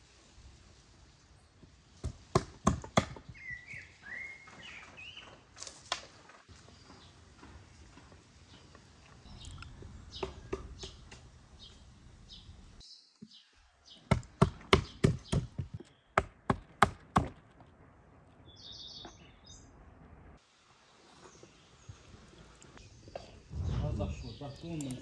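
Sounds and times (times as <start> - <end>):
sharp knocks on wooden board: 2.0 - 3.3, 14.1 - 17.4
bird chirp: 3.2 - 5.4, 8.5 - 16.2, 18.4 - 19.8.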